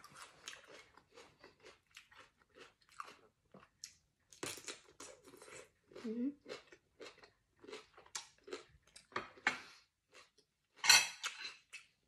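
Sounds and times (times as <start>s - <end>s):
cucumber chewing crunches: 0.0s - 9.1s.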